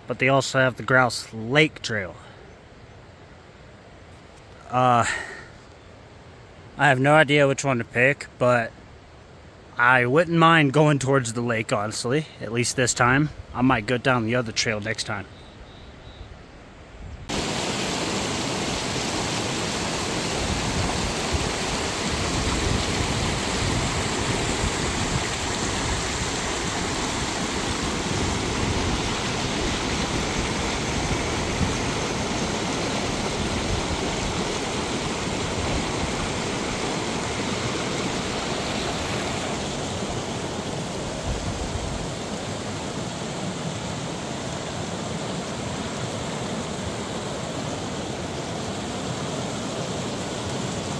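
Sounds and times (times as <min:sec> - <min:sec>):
creek rushing: 0:17.3 - 0:50.9.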